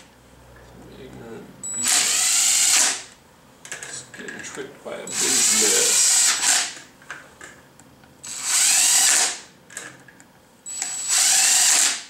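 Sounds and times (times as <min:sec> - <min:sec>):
cordless drill whining: 0:01.8 - 0:03.1, 0:05.1 - 0:06.8, 0:08.2 - 0:09.4, 0:10.7 - 0:12.0.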